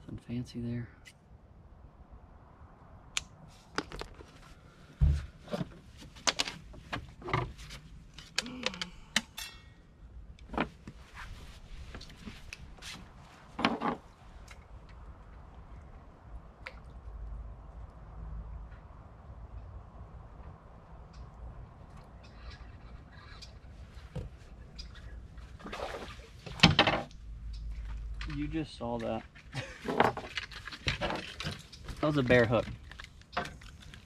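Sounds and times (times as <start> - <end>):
fishing gear clicks and knocks: 3.7 - 4.4, 5.5 - 9.4, 26.5 - 34.0
heavy thump: 5.0 - 5.4.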